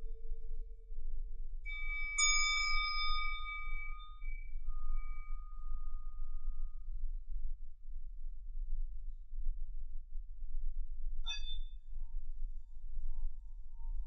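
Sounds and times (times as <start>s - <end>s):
low singing bowl hum: 0.0s - 14.0s
singing bowl ringing: 1.7s - 6.7s.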